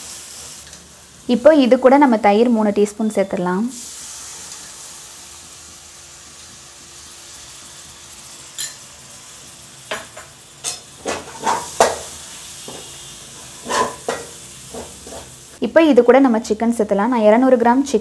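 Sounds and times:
masala sizzling in a pan: 0:00.0 - 0:18.0
ladle scraping a pan: 0:13.4 - 0:15.4.

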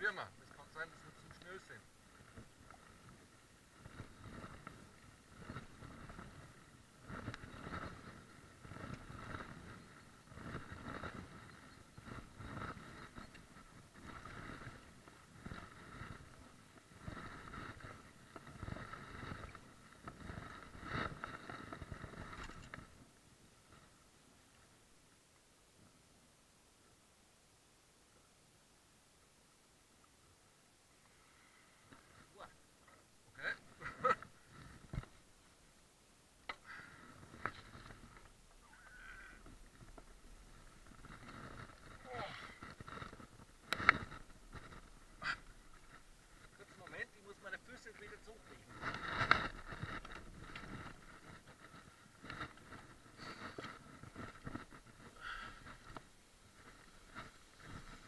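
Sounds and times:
kayak knocks and rustles: 0:00.4 - 0:24.0, 0:33.8 - 0:35.4, 0:36.4 - 0:38.6, 0:39.4 - 0:58.0.

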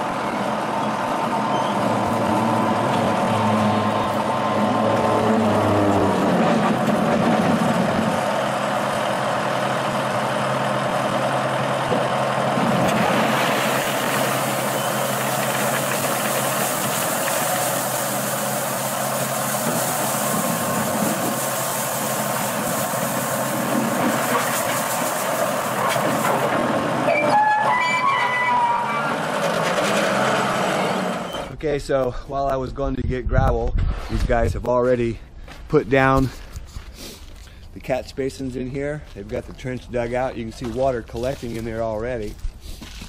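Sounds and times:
diesel engine running: 0:00.0 - 0:31.6
gravel pouring into trailer: 0:12.6 - 0:27.0.

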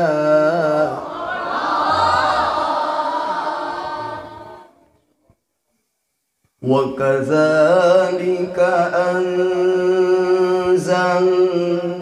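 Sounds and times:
man reciting into a microphone: 0:00.0 - 0:01.2, 0:06.6 - 0:12.0
crowd voices responding: 0:01.0 - 0:04.8.

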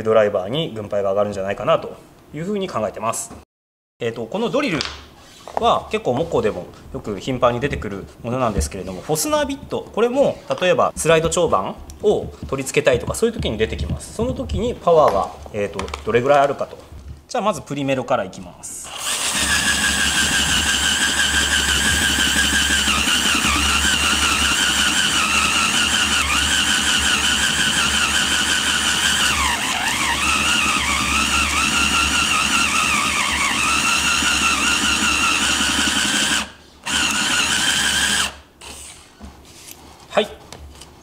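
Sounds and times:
cordless drill whining into wood: 0:18.9 - 0:39.0.

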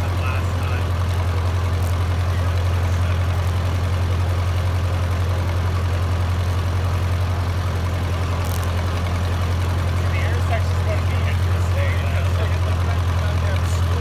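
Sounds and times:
tractor engine running: 0:00.0 - 0:14.0.

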